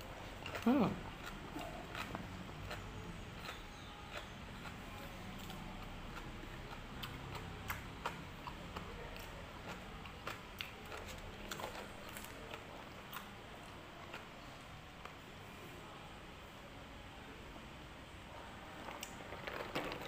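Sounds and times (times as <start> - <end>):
chewing and mouth sounds: 0.0 - 15.2
low steady hum: 0.0 - 20.0.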